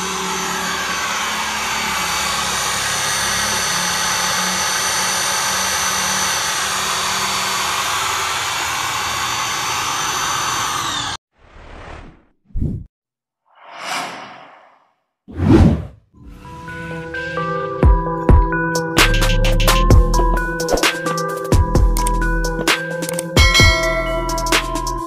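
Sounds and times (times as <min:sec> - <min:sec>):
electric drill running: 0:00.0 - 0:11.2.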